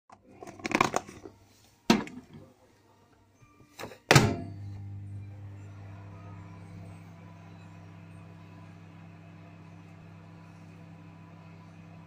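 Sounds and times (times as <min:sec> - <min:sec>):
microwave oven humming: 0:03.4 - 0:12.0
loud thunk: 0:04.1 - 0:04.5.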